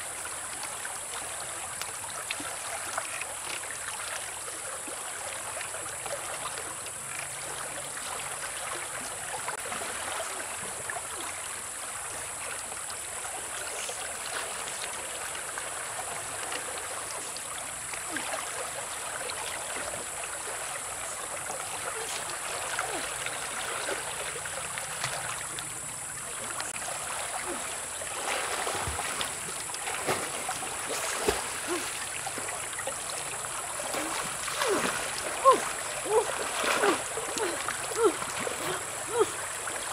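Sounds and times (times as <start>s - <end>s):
swimmer splashing: 21.4s - 25.6s, 26.2s - 39.9s
river running over rocks: 21.6s - 39.9s.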